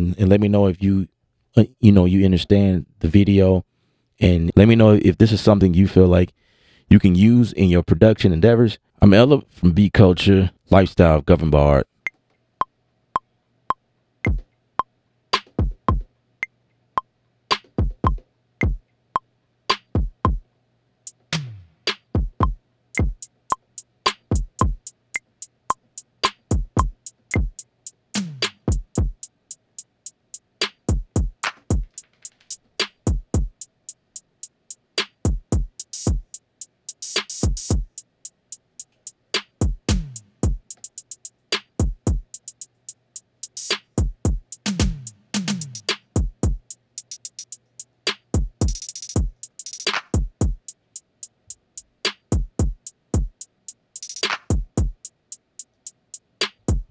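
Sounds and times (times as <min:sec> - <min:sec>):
drum machine beat: 0:14.2 - 0:14.5, 0:15.4 - 0:16.1, 0:17.5 - 0:18.8, 0:19.7 - 0:20.4, 0:21.1 - 0:56.9
sharp snare-like hits: 0:17.5 - 0:17.8, 0:19.7 - 0:19.9, 0:21.3 - 0:22.2, 0:24.1 - 0:24.4, 0:26.2 - 0:26.6, 0:28.2 - 0:28.8, 0:30.6 - 0:33.1, 0:35.0 - 0:35.3, 0:37.0 - 0:37.8, 0:39.4 - 0:40.2, 0:41.5 - 0:41.9, 0:43.6 - 0:44.0, 0:44.7 - 0:46.2, 0:47.1 - 0:50.4, 0:52.1 - 0:52.7, 0:54.0 - 0:54.8, 0:56.4 - 0:56.8
deep kick drums: 0:17.8 - 0:18.8, 0:20.0 - 0:20.4, 0:22.2 - 0:23.2, 0:24.3 - 0:24.8, 0:26.5 - 0:27.6, 0:28.6 - 0:29.2, 0:30.9 - 0:31.9, 0:33.1 - 0:33.5, 0:35.3 - 0:36.2, 0:37.4 - 0:37.9, 0:39.6 - 0:40.6, 0:41.8 - 0:42.2, 0:44.0 - 0:45.1, 0:46.2 - 0:46.6, 0:48.4 - 0:49.4, 0:50.2 - 0:50.6, 0:52.3 - 0:53.3, 0:54.5 - 0:55.0
hi-hat ticks: 0:21.0 - 0:56.9
metronome clicking: 0:35.8 - 0:39.5, 0:46.6 - 0:56.8.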